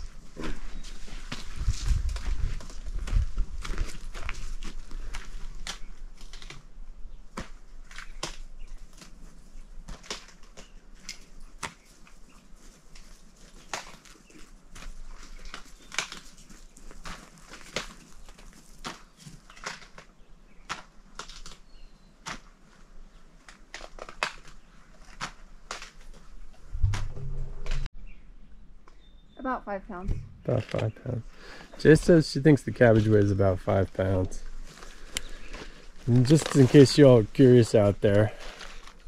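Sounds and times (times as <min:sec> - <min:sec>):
dog crunching cabbage: 0:23.4 - 0:26.2.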